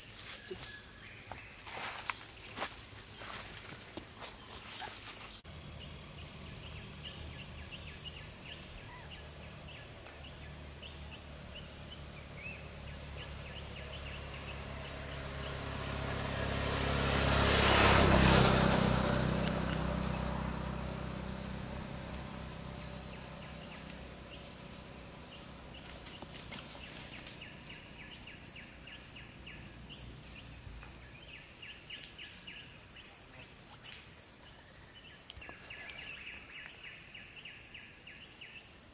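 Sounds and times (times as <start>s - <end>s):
vehicle passing by: 4.3s - 32.7s.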